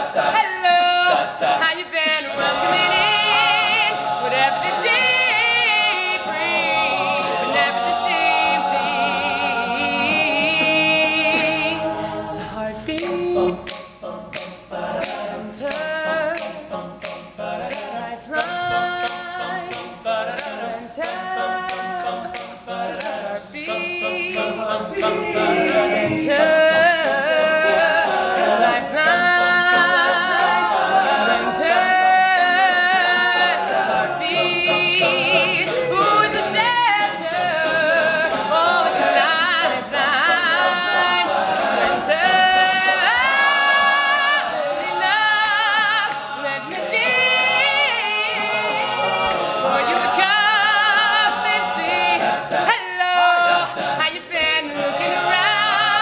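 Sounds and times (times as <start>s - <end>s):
men's a cappella group singing: 0.0s - 56.0s
sharp clicks keeping a beat: 2.2s - 12.0s, 12.9s - 52.8s, 53.5s - 56.0s.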